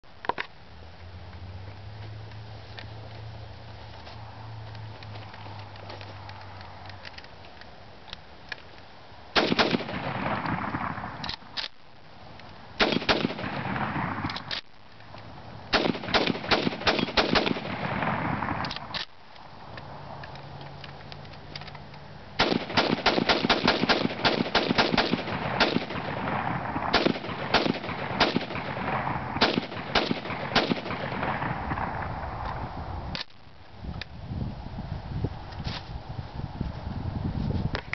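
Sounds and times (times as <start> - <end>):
gunshots with echo: 9.4 - 11.2, 12.8 - 14.3, 15.7 - 18.6, 22.4 - 31.9.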